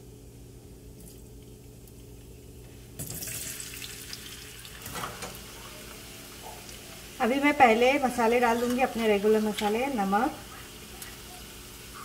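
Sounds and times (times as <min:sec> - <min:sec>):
low steady hum: 0:00.0 - 0:12.0
potatoes sizzling in hot oil: 0:03.1 - 0:12.0.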